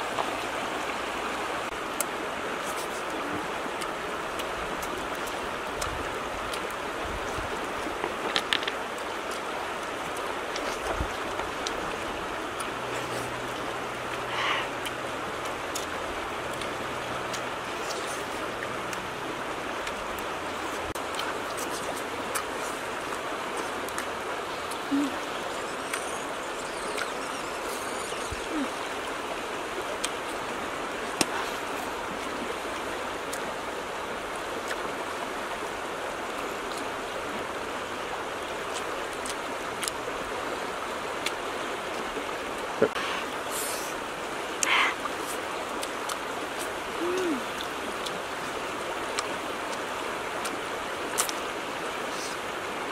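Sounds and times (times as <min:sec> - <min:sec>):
river rushing over rocks: 0:00.0 - 0:52.9
voice murmuring: 0:24.8 - 0:25.4, 0:28.4 - 0:28.8, 0:46.9 - 0:47.5.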